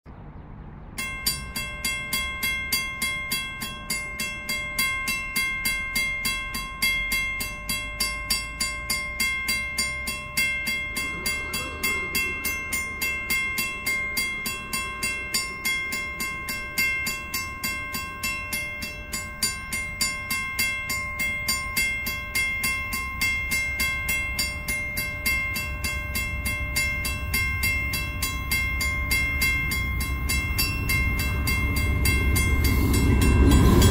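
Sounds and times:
diesel locomotive rumble: 0:00.1 - 0:33.9
level crossing bell ringing: 0:01.0 - 0:33.9
faint train horn: 0:11.0 - 0:13.2.

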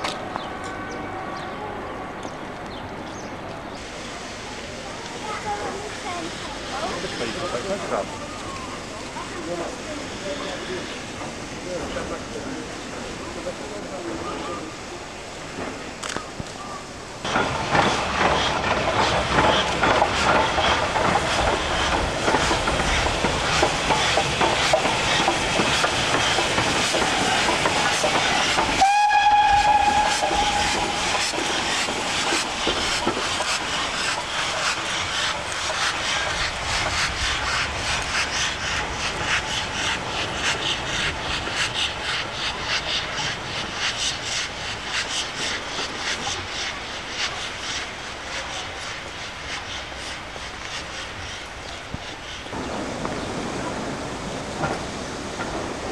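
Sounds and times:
steam locomotive exhaust beats: 0:03.5 - 0:55.9
steam whistle blast: 0:28.8 - 0:31.1.

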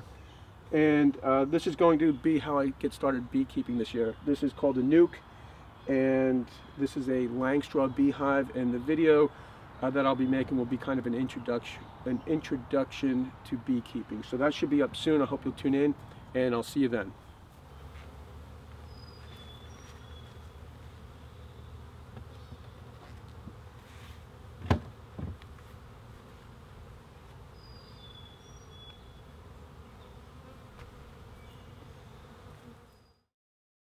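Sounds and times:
honeybees buzzing: 0:16.9 - 0:33.2
wooden hive lid knocks: 0:24.6 - 0:25.4.

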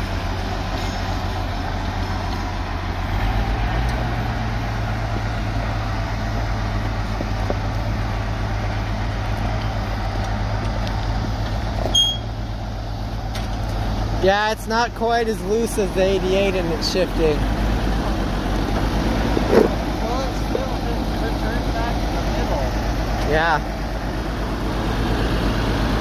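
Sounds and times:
tractor engine running: 0:00.0 - 0:26.0.

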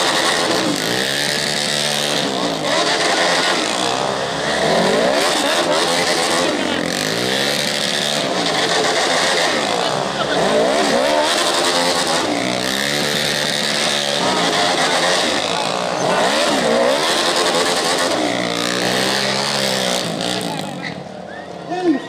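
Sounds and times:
quad bike engines revving: 0:00.0 - 0:22.0.

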